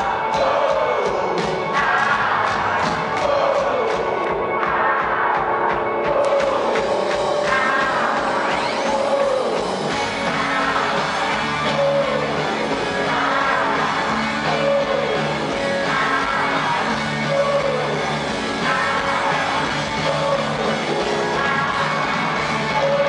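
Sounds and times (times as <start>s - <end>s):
drums: 0.0s - 23.0s
electric guitars: 0.0s - 23.0s
man singing: 7.4s - 23.0s.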